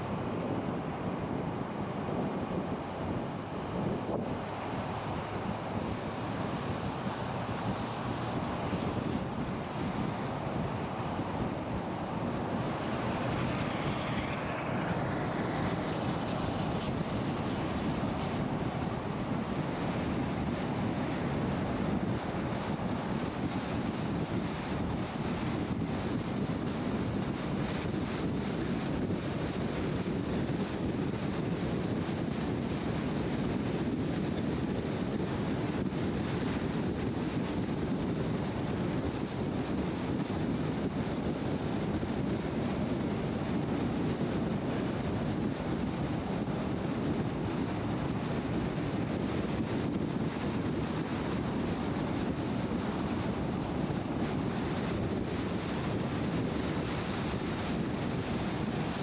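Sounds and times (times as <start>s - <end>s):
road and wind noise: 0.0s - 59.0s.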